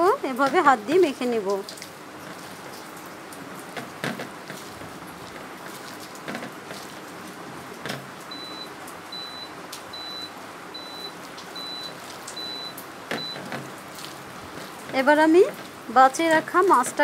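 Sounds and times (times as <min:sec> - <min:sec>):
soft knocks: 0:03.8 - 0:04.6
high electronic beep: 0:08.3 - 0:13.4.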